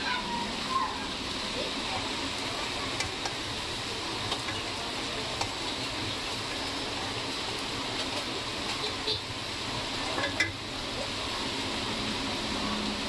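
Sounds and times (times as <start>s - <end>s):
vegetables sizzling in a wok: 0.0s - 13.0s.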